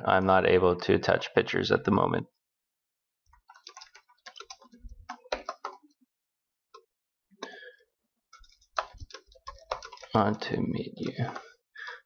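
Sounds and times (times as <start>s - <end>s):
keyboard typing: 3.3s - 6.0s, 8.4s - 12.0s.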